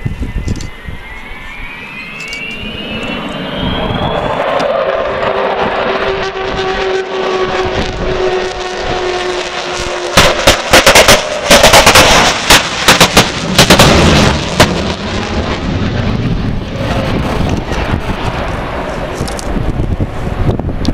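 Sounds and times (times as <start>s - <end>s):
jet aircraft passing overhead: 0.0s - 20.9s.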